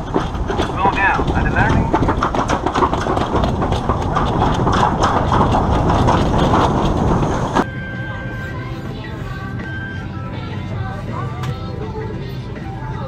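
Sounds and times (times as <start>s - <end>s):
sled rumbling down metal chute: 0.0s - 8.4s.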